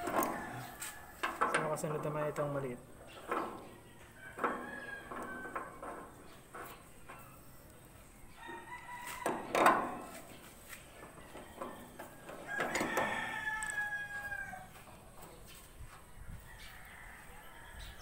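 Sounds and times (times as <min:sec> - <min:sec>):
rooster crowing: 0:00.0 - 0:01.4, 0:04.0 - 0:05.8, 0:08.3 - 0:10.2, 0:11.2 - 0:14.9, 0:16.3 - 0:18.0.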